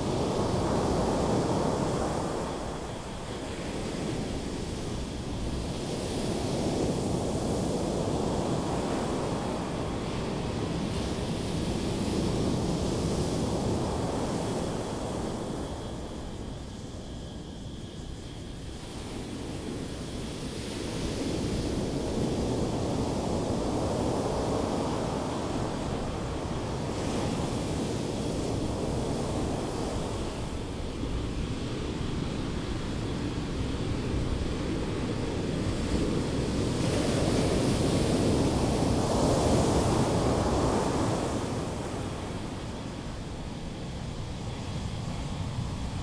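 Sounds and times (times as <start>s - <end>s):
ocean waves breaking on beach: 18.9s - 46.0s.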